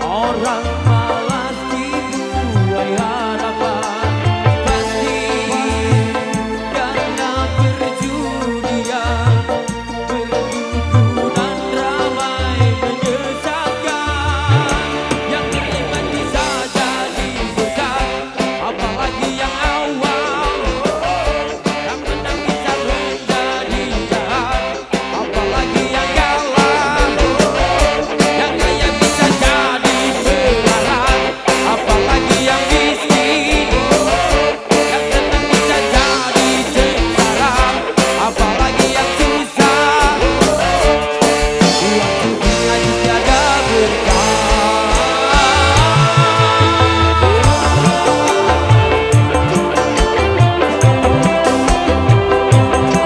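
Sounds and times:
electric guitars: 0.0 - 53.0
keyboard: 0.0 - 53.0
live band playing: 0.0 - 53.0
man singing: 0.0 - 53.0
steady drum beat: 0.0 - 53.0
wavering lead melody: 30.4 - 53.0.

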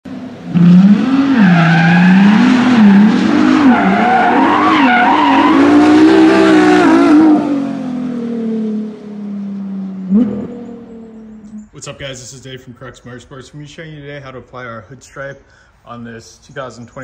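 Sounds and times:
car engine revving: 0.1 - 11.7
tyres squealing: 1.3 - 6.8.

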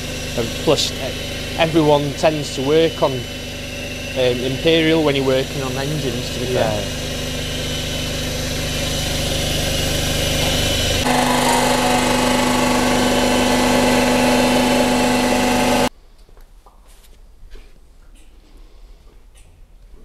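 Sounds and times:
machine hum with whine: 0.0 - 15.9.

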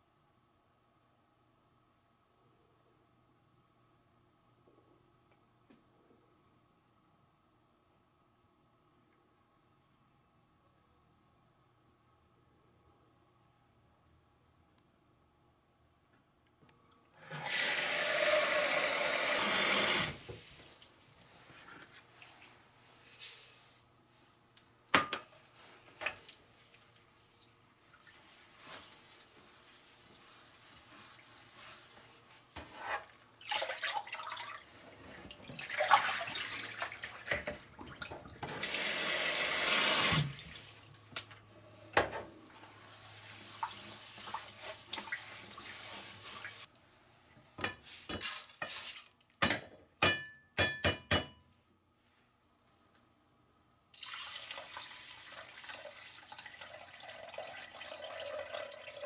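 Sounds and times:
water sloshing and splashing: 33.4 - 38.5.

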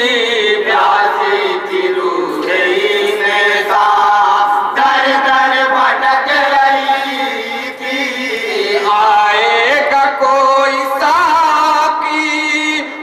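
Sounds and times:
men singing into a microphone: 0.0 - 13.0.

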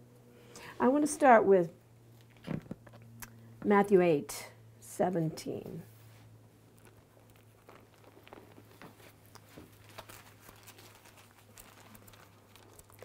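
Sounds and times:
low steady hum: 0.0 - 13.0
book pages rustling: 6.8 - 12.8.

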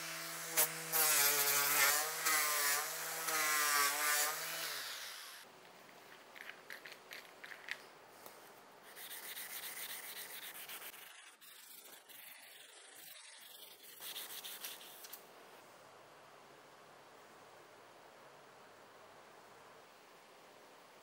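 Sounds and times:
sanding pad rubbing knife blade: 8.8 - 15.2.

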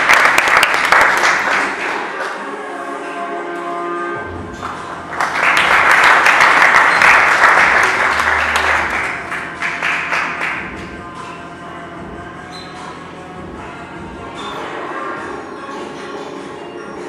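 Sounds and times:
audience applause: 0.0 - 2.2, 4.6 - 10.6.

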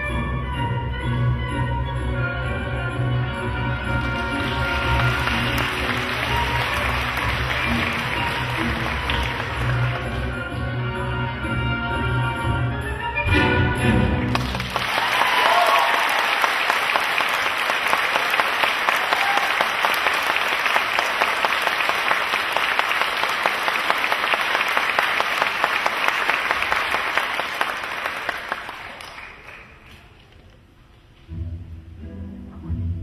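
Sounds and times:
audience applauding: 3.8 - 10.3, 14.2 - 30.2.

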